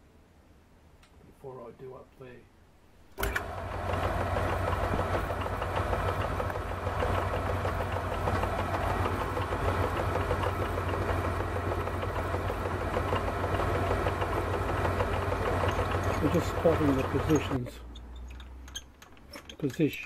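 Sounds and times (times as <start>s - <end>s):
metal lathe humming: 3.2s - 18.0s.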